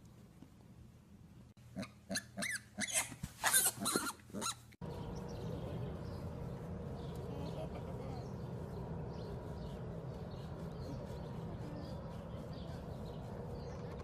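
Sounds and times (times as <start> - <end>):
piglet squealing: 1.8 - 4.7
steady low hum: 4.8 - 14.0.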